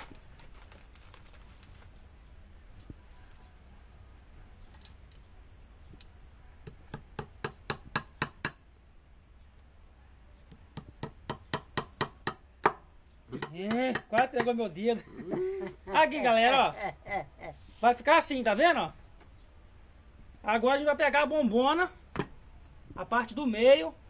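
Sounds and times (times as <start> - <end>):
hammer tapping nail into wood: 13.4 - 14.6.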